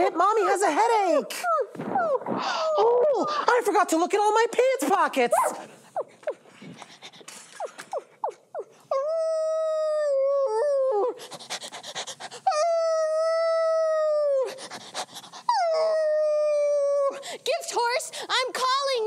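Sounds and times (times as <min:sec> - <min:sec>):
panting breaths: 0:05.4 - 0:08.9, 0:10.9 - 0:12.9, 0:14.4 - 0:16.1.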